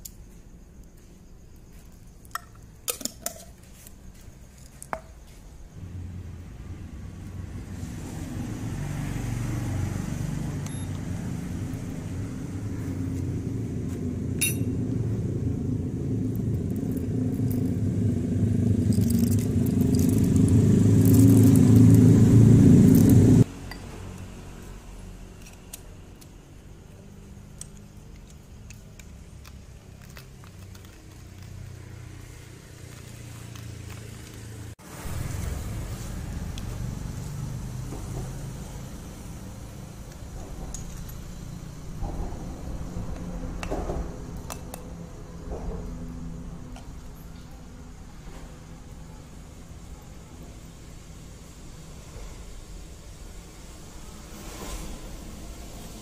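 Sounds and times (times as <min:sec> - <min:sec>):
low traffic hum: 0:00.0 - 0:56.0
vehicle engine rumble: 0:00.0 - 0:56.0
coffee beans and glass clinking: 0:14.4 - 0:14.7, 0:18.8 - 0:21.9.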